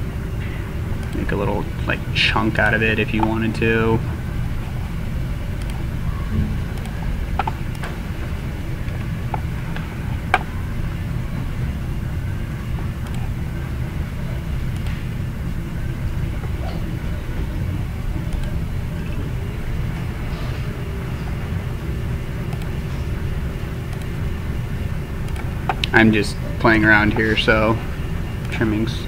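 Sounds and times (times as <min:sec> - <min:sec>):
low background rumble: 0:00.0 - 0:29.0
computer mouse clicks: 0:05.6 - 0:05.8, 0:13.0 - 0:13.2, 0:25.3 - 0:25.9.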